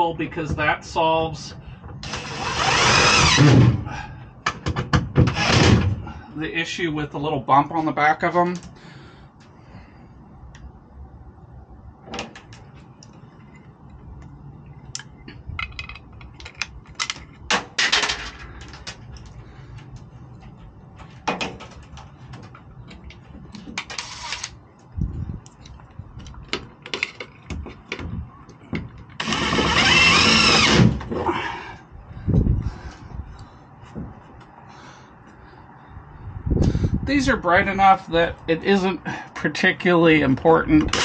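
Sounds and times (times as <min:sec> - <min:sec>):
cordless drill motor whine: 0:02.0 - 0:03.5, 0:29.2 - 0:30.9
clicks and knocks of parts: 0:14.9 - 0:29.3.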